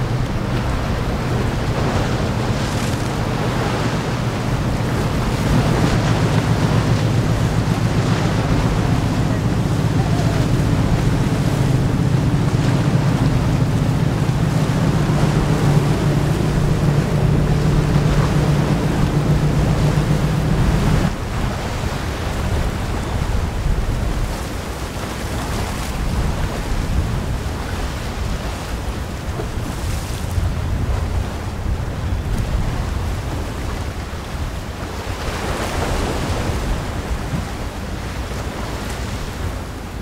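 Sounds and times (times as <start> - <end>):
low engine drone: 0.0 - 21.4
waves rushing: 0.0 - 40.0
wind buffeting microphone: 0.0 - 40.0.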